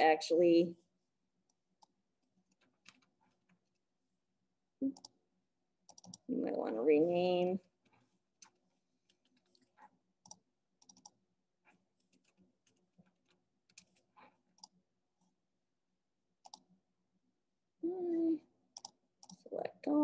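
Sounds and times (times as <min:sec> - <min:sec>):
mouse clicks: 0:16.4 - 0:16.6.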